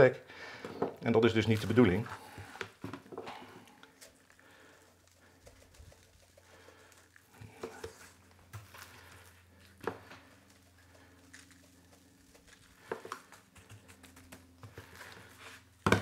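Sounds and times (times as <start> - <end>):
dry rub shaken from a shaker: 4.8 - 9.4, 10.2 - 15.8
hand patting meat: 11.9 - 15.2.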